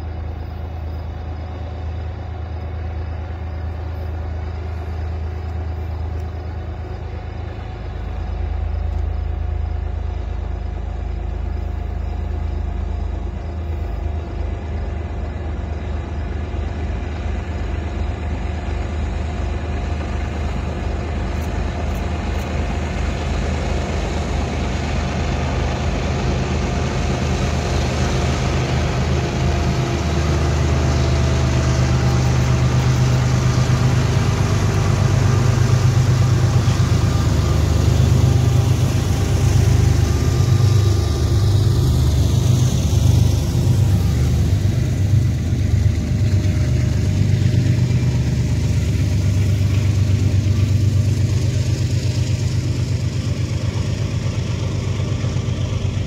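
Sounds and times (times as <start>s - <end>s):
diesel locomotives droning: 0.0s - 56.0s
coal hoppers rolling by: 13.3s - 56.0s.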